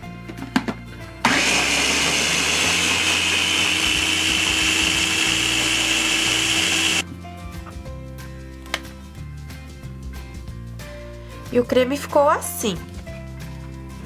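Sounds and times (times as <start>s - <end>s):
blender motor running: 1.2s - 7.0s.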